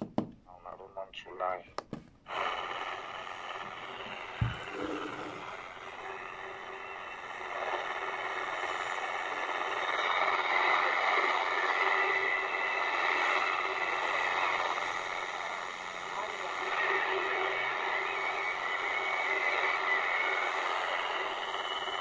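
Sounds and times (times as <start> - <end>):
steady radio tones: 0.6 - 6.1.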